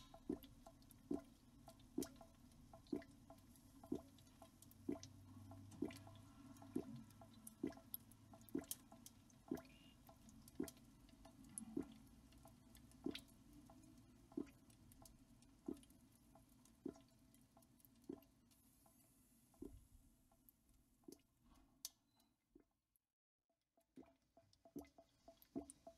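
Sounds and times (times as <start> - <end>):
faint drip-like taps: 0.0 - 22.7, 23.8 - 25.9.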